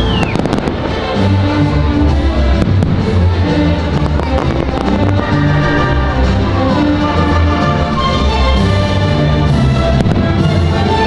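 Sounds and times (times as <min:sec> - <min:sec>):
orchestral music: 0:00.0 - 0:11.0
firework cracks: 0:00.1 - 0:01.2.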